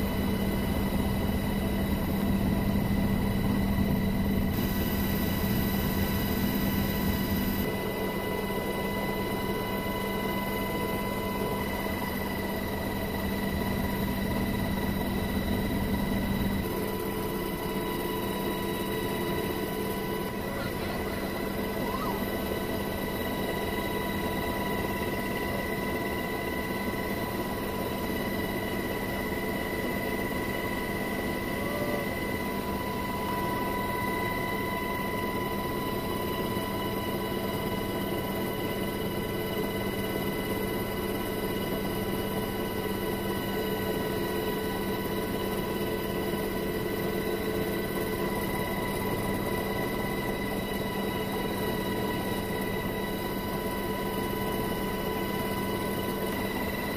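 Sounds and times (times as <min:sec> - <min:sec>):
high steady whine: 0:00.0 - 0:36.0
helicopter engines and rotors drone: 0:00.0 - 0:56.9.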